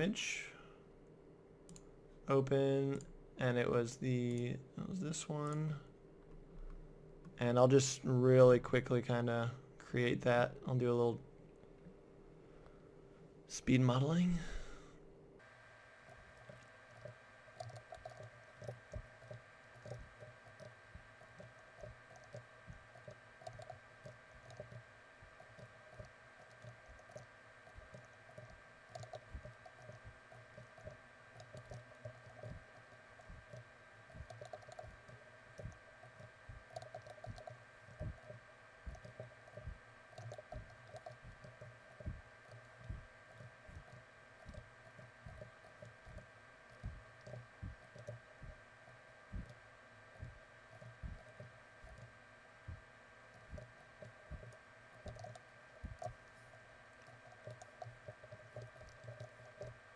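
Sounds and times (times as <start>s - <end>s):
low electrical hum: 0.0s - 59.9s
keyboard and mouse clicking: 16.1s - 24.8s, 25.4s - 48.2s, 53.3s - 59.8s.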